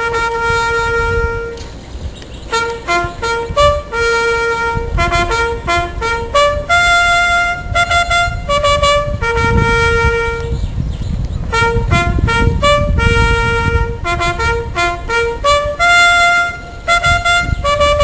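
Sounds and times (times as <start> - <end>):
solo trumpet bugle call: 0.0 - 1.7, 2.5 - 10.6, 11.5 - 18.0.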